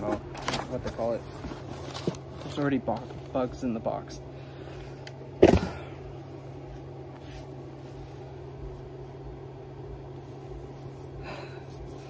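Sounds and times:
low hum and hiss: 0.0 - 12.0.

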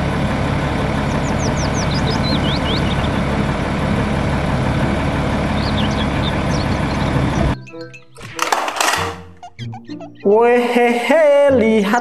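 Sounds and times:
diesel truck engine idling: 0.0 - 7.6.

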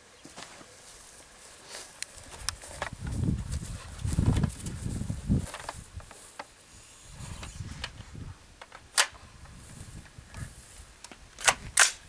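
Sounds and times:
rifle metallic clicks: 8.6 - 9.2, 11.0 - 12.0.

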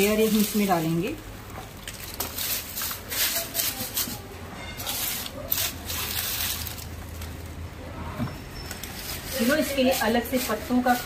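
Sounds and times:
dry leaves rustling: 0.0 - 7.5, 8.7 - 11.0.

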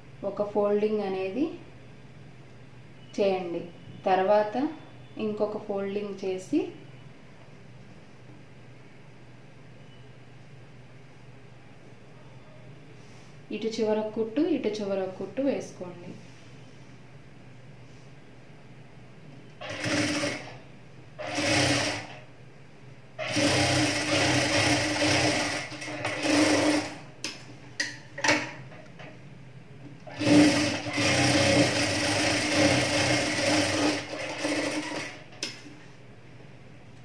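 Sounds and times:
industrial sewing machine stitching: 19.6 - 20.6, 21.2 - 22.3, 23.2 - 27.1, 30.0 - 35.3.

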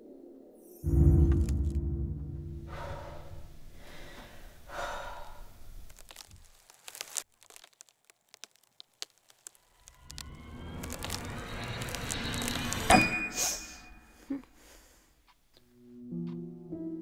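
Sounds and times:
low rumble of a boom: 0.8 - 3.7
woman breathing heavily: 2.6 - 5.8, 13.5 - 15.3.

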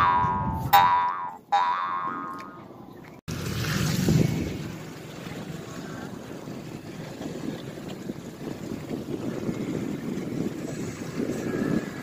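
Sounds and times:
wind on microphone: 0.0 - 0.9, 3.6 - 12.0
boat engine rumbling: 0.0 - 12.0.

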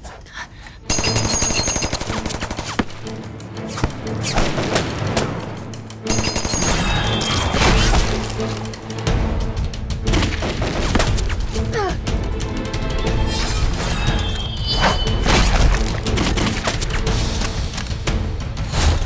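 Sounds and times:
dramatic background music: 0.0 - 19.0
machine-gun fire: 0.9 - 3.0.

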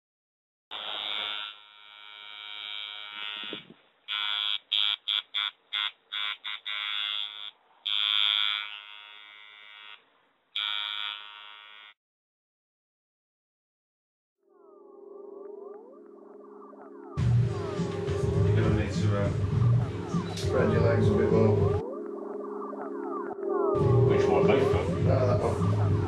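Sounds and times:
harsh electric buzz: 0.7 - 12.0.

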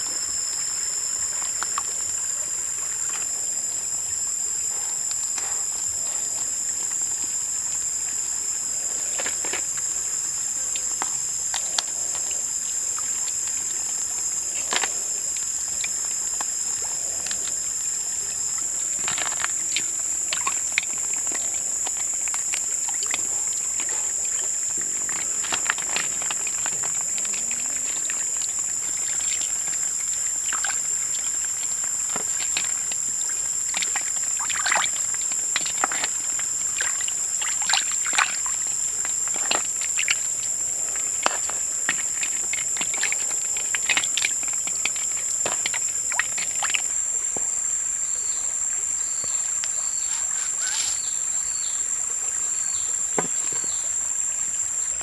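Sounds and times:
water splashing in a bowl: 0.0 - 48.1
high-pitched insect drone: 48.0 - 55.0.

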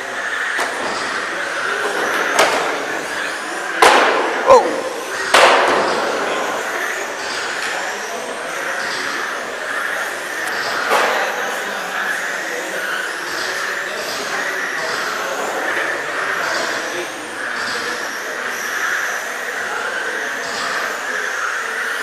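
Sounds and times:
rc car motors whining: 5.9 - 22.0.

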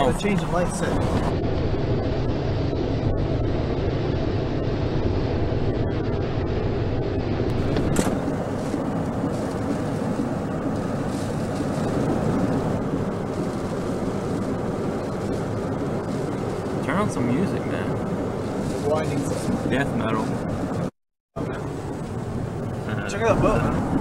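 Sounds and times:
wind buffeting microphone: 0.0 - 24.0.

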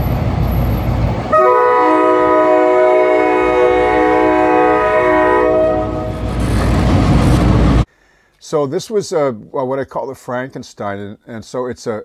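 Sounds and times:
low rumble of locomotives: 0.0 - 7.9
locomotive air horn blast: 1.3 - 6.5.

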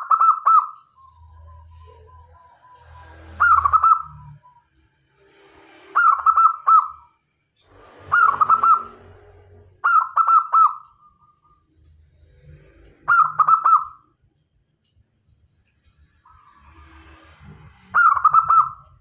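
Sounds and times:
dove cooing: 0.0 - 4.6, 6.0 - 7.0, 8.1 - 9.0, 9.8 - 10.8, 13.1 - 14.0, 18.0 - 18.8.

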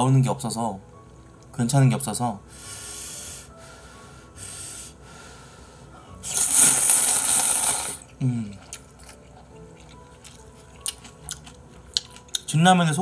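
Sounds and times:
man slurping noodles: 6.2 - 8.7.

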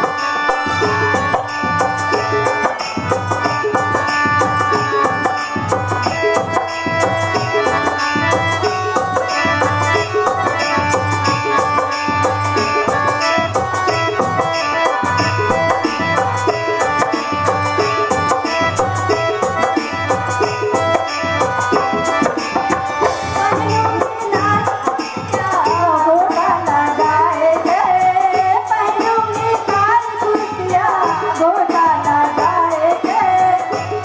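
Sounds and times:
melody instruments: 0.0 - 26.6
quick steady drum beat: 0.0 - 34.0.

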